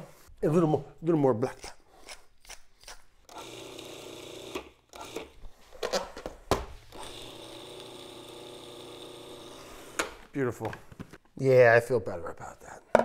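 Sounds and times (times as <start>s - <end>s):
small electric motor running: 7.0s - 10.0s.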